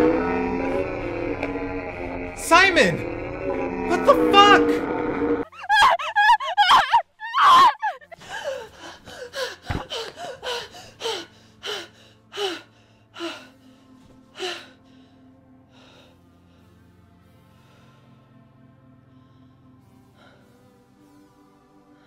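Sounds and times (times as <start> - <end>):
loud warbling sound: 0.0 - 5.4
low music drone: 0.0 - 5.7, 8.1 - 22.0
woman gasping for breath: 8.2 - 13.4.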